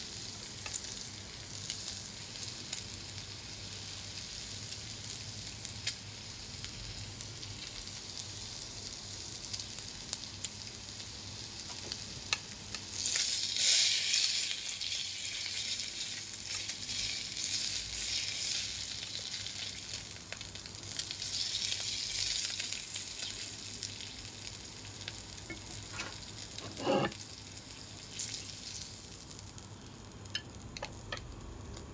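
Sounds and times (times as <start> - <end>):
meat sizzling on grill plate: 0.0 - 31.7
chopsticks scraping grill: 25.5 - 27.2.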